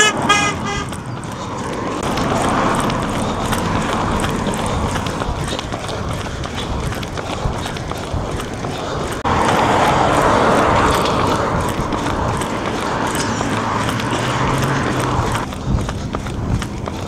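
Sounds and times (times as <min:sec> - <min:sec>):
runners' footsteps on tarmac: 0:00.0 - 0:17.0
car driving past: 0:09.2 - 0:15.5.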